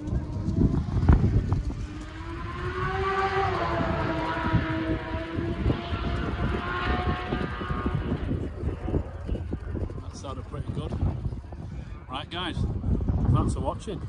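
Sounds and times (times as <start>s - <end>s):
vehicle engine hum passing: 0.0s - 11.2s
low rumbling noise: 0.0s - 14.0s.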